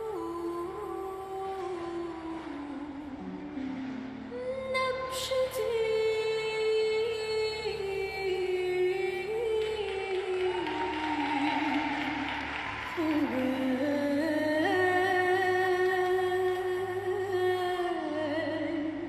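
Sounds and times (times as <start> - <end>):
person singing long held notes: 0.0 - 19.0.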